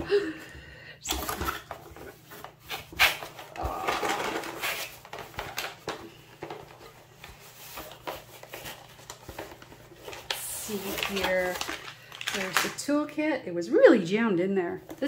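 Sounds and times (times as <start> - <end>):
plastic rustling: 1.1 - 13.0.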